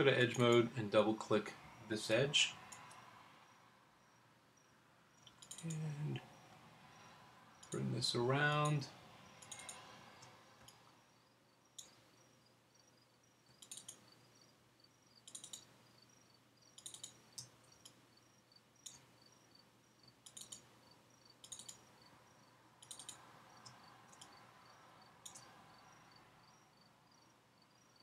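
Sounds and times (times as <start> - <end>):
faint mouse clicks: 2.7 - 3.0, 5.2 - 5.9, 9.4 - 10.8, 11.7 - 12.0, 13.5 - 14.0, 15.2 - 15.7, 16.7 - 18.0, 20.2 - 20.7, 21.4 - 21.8, 22.8 - 24.3, 25.2 - 25.5.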